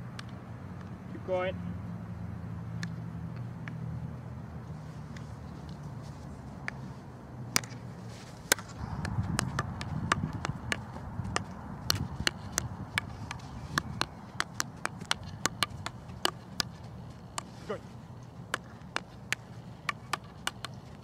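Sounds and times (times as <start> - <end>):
hockey stick hitting ball: 7.5 - 21.0
hockey dribbling taps: 8.4 - 21.0.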